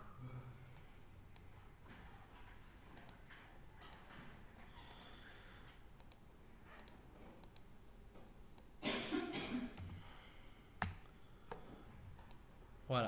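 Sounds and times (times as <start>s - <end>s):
mouse and keyboard clicking: 3.8s - 4.1s, 6.0s - 7.7s.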